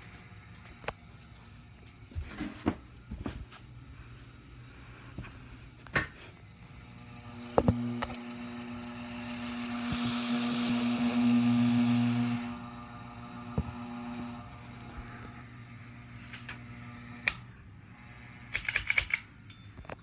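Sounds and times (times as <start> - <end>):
electric fan motor hum: 0.0 - 19.6
sharp clicks: 18.5 - 19.3.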